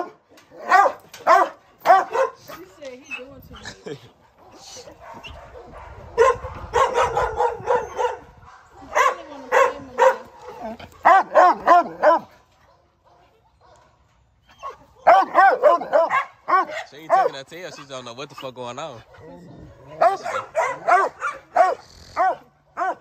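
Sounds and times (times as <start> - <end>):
dog barking: 0.0 - 2.6, 4.4 - 13.8, 14.6 - 17.4, 19.9 - 23.0.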